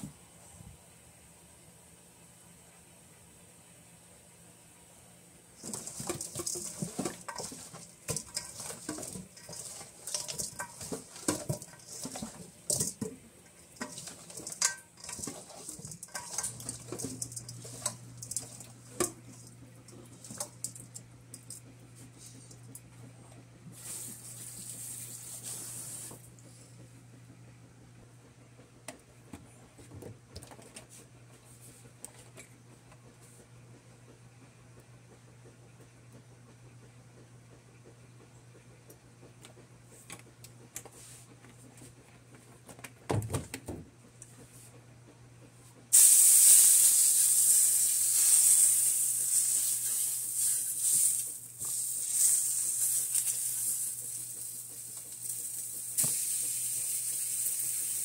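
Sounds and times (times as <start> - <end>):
steady low hum: 0.0 - 43.0
knocks and scrapes on metal bowl: 5.6 - 20.8
brief hiss: 46.0 - 49.0.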